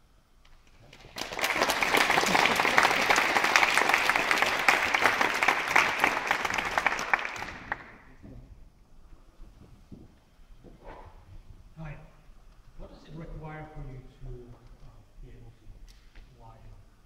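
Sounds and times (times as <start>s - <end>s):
audience applauding: 0.6s - 8.2s.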